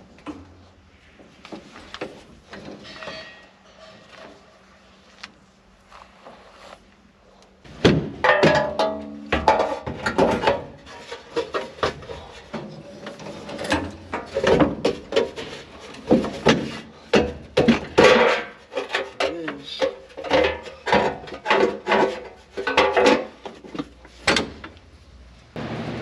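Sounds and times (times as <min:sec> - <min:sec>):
clunks and knocks on metal: 0:02.5 - 0:04.4, 0:07.7 - 0:24.8.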